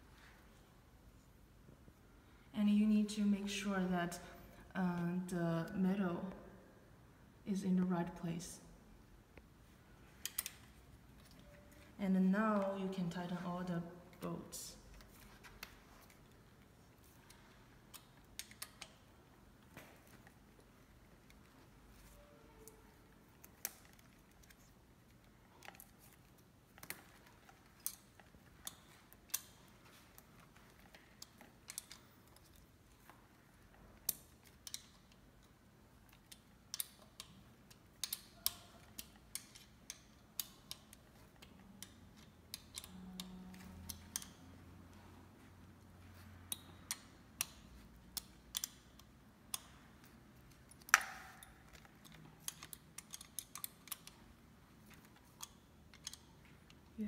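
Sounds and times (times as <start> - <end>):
wrench clicking on bolts: 36.1 - 44.6, 46.4 - 54.2.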